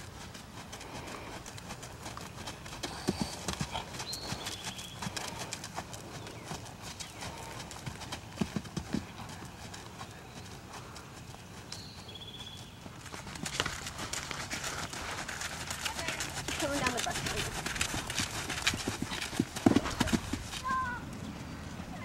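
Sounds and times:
horse hoofbeats on sand: 0:00.0 - 0:21.0.

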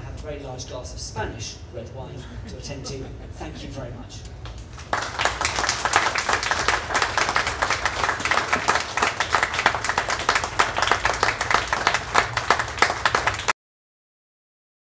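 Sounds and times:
audience applauding: 0:04.4 - 0:13.6.

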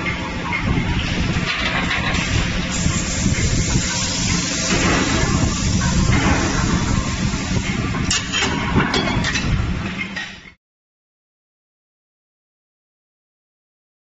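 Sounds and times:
machinery rumble with hiss: 0:00.0 - 0:10.0.

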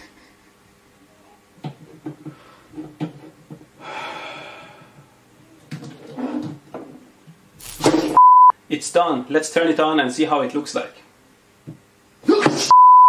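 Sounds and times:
breathy groans: 0:03.8 - 0:05.2.

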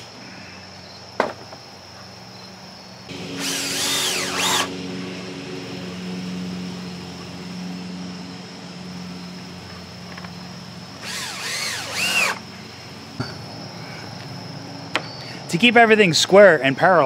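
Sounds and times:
low steady hum: 0:03.1 - 0:14.9
cordless drill whirring: 0:03.4 - 0:04.7, 0:11.0 - 0:12.5.

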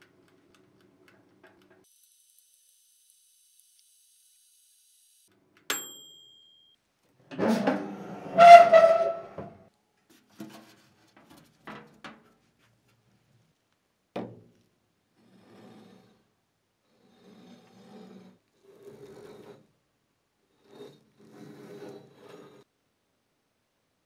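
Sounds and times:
oven timer bell ding: 0:05.7 - 0:06.8
oven door creaking open: 0:07.3 - 0:09.6.

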